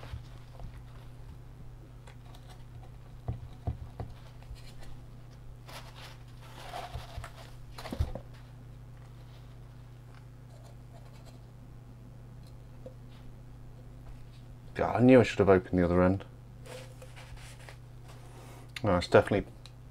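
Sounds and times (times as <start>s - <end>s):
steady low hum: 0.0s - 19.9s
foil rustling and scraping: 5.6s - 7.6s, 16.6s - 17.8s.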